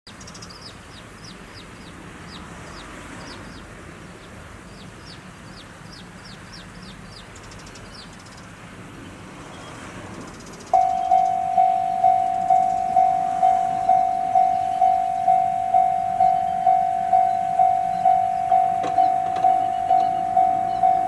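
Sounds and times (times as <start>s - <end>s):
small bird chirping: 0.1s - 21.0s
level-crossing alarm ringing: 10.7s - 21.0s.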